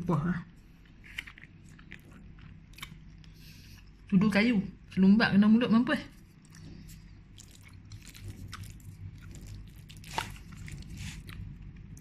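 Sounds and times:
low steady hum: 0:00.0 - 0:12.0
chewing noodles: 0:00.8 - 0:04.1, 0:06.2 - 0:12.0.

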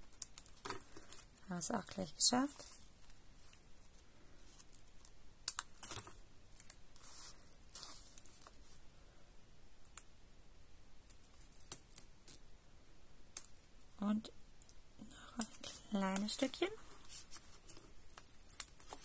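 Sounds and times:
paper rustling: 0:15.6 - 0:19.0.

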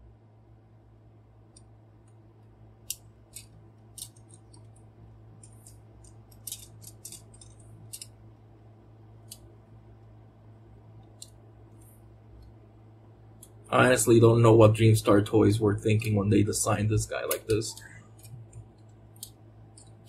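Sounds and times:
plastic toy parts clicking: 0:02.8 - 0:04.8, 0:05.4 - 0:08.2, 0:17.3 - 0:20.0.

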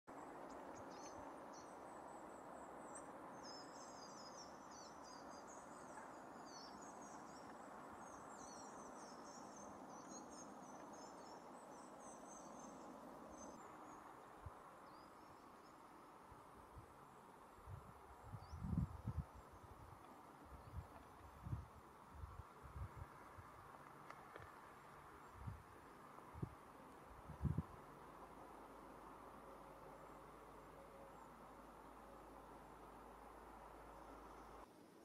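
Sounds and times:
small birds twittering: 0:00.1 - 0:16.2
outdoor background hush: 0:00.1 - 0:35.0.

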